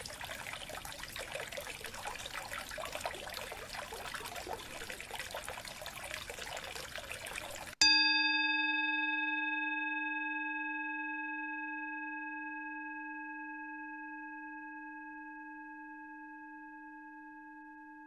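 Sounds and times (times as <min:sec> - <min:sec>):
struck bell tone: 0:07.8 - 0:18.0.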